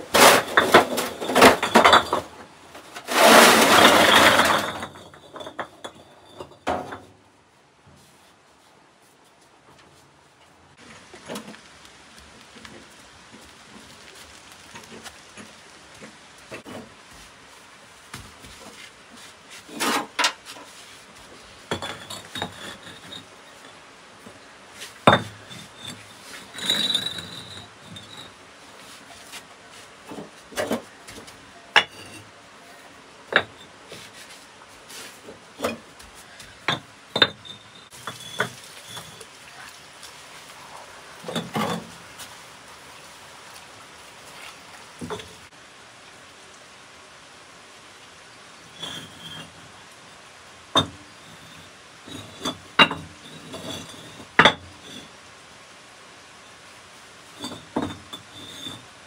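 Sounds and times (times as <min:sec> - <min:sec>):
knocks and clinks of hard objects: 0:00.0 - 0:07.1, 0:21.7 - 0:23.7, 0:36.4 - 0:39.3, 0:50.8 - 0:54.7
scraping rustle: 0:00.0 - 0:07.2, 0:07.8 - 0:45.6, 0:51.1 - 0:55.2.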